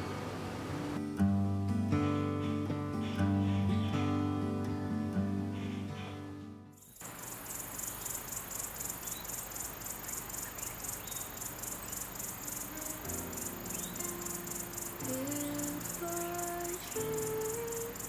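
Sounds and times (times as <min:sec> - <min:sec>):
crickets chirping: 0:06.8 - 0:18.0
held musical notes: 0:12.3 - 0:18.0.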